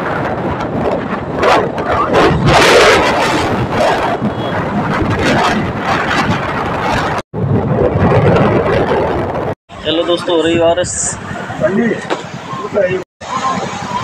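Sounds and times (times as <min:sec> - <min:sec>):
motorcycle road and engine noise: 0:00.0 - 0:14.0
wind on microphone: 0:00.0 - 0:14.0.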